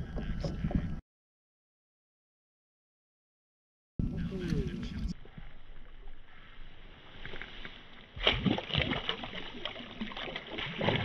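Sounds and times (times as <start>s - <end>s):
fish splashing and thrashing in water: 5.6s - 11.0s.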